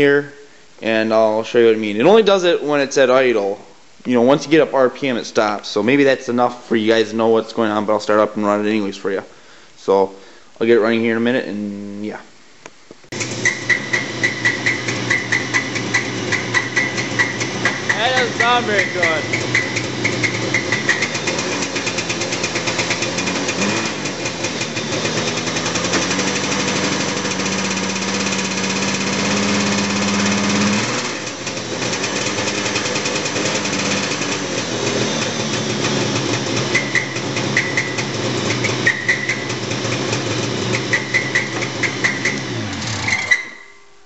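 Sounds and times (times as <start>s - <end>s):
snowmobile engine idling: 13.2s - 42.8s
person speaking: 17.9s - 19.4s.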